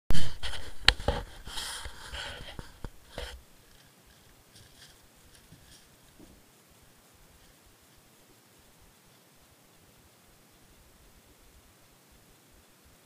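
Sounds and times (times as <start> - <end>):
rubbing and scraping: 0.1 - 8.3.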